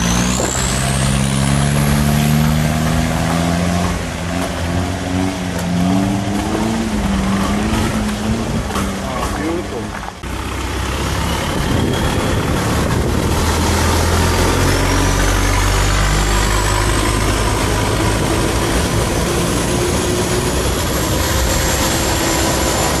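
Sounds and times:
boat engine running hard: 10.6 - 23.0.

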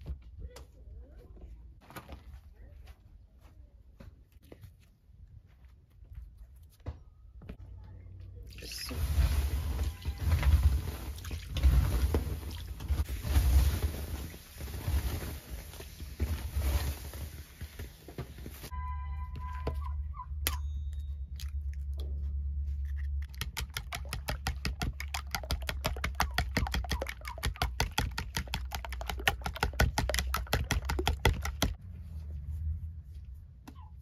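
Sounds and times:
metal spoon beating eggs in bowl: 23.2 - 31.8.

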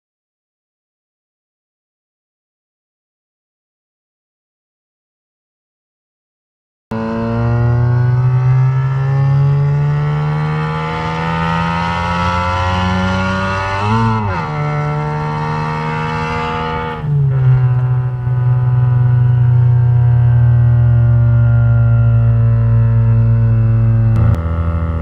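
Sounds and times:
car engine accelerating: 6.9 - 25.0.

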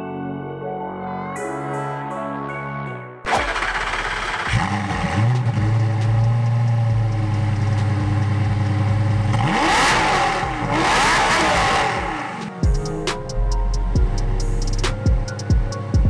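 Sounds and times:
car engine idling and revving: 3.3 - 16.0.

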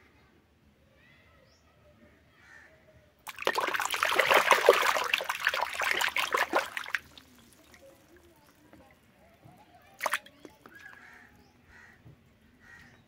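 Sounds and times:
hand splashing water in basin: 3.3 - 8.3, 10.0 - 11.0.

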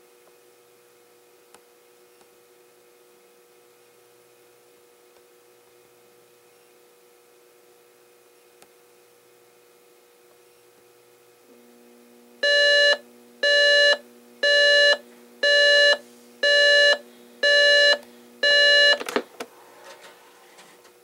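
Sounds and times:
alarm clock beeping: 12.4 - 19.0.

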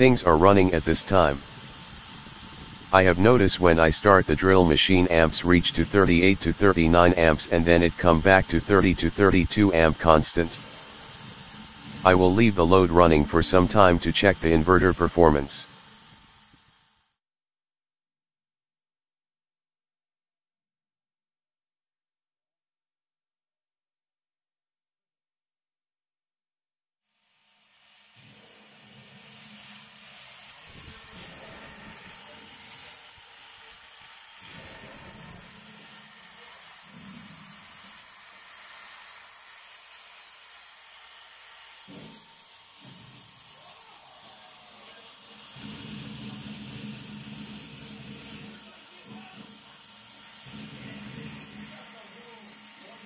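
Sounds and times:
steady high hiss: 0.0 - 15.7.

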